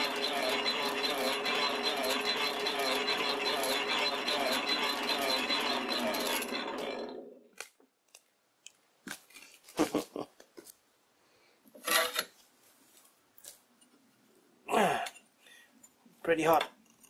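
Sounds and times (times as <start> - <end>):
power hacksaw rasping on metal: 0.0 - 7.3.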